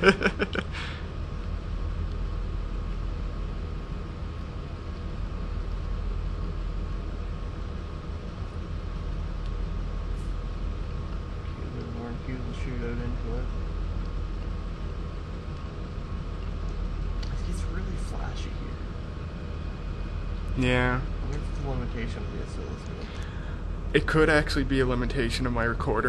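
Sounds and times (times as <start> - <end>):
faint steady tone: 0.0 - 26.0
room noise hum and hiss: 0.0 - 26.0.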